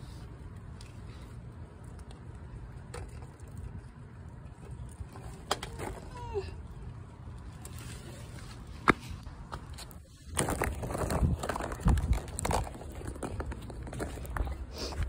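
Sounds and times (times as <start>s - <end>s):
low steady rumble: 0.0s - 15.0s
rustling and handling noise: 7.3s - 15.0s.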